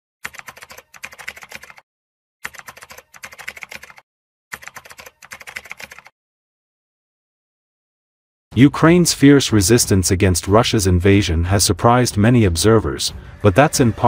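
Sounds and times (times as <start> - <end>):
keyboard typing: 0.2 - 1.8, 2.4 - 6.1.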